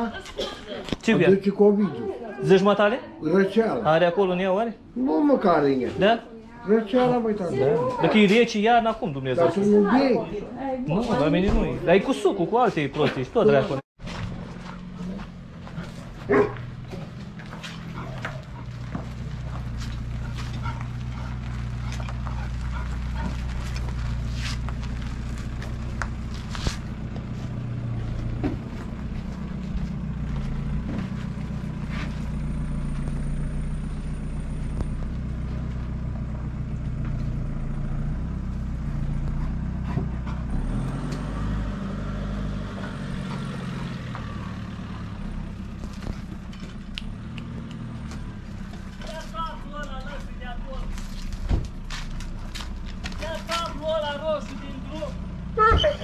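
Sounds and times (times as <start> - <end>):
engine humming: 0.0 - 56.0.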